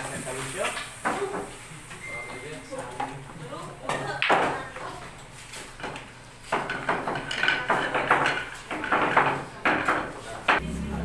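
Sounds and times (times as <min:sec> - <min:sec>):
pool balls clacking: 0:05.7 - 0:10.7.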